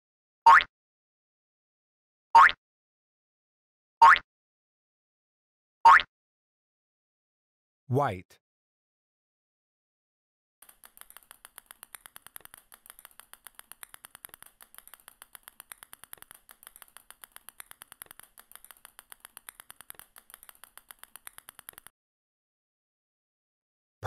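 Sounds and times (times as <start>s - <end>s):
small balls dropping clicks: 10.6s - 21.9s.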